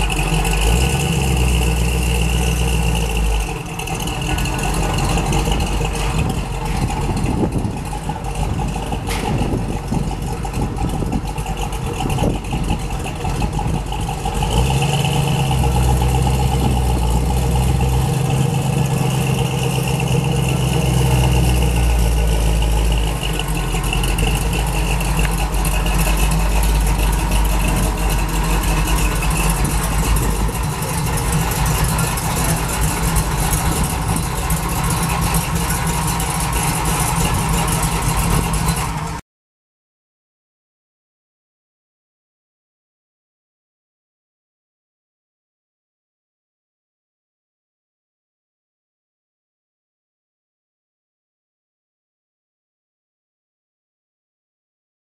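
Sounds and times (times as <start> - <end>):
car engine idling: 0.0 - 39.2.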